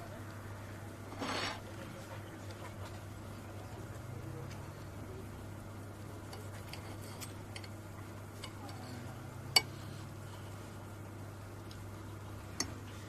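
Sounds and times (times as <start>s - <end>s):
steady low hum: 0.0s - 13.0s
cutlery scraping on plates: 6.3s - 7.8s.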